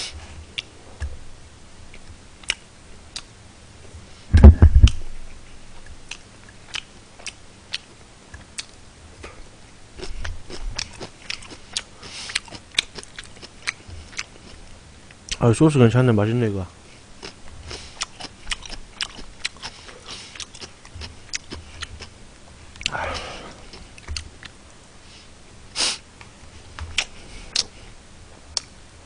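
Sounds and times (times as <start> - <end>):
man chewing food: 0.0 - 3.4, 4.0 - 15.4, 16.8 - 28.8
heavy thump: 4.3 - 4.9
mouth smacks: 4.3 - 5.0.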